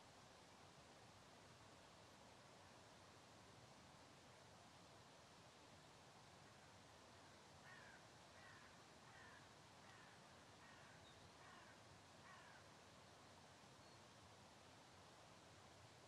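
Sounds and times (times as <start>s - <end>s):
faint steady hiss: 0.0s - 16.0s
crow cawing: 7.6s - 12.7s.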